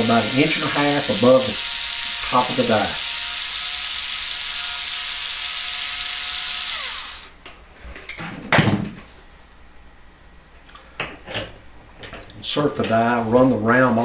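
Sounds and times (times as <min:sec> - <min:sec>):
power driver running: 0:00.0 - 0:07.4.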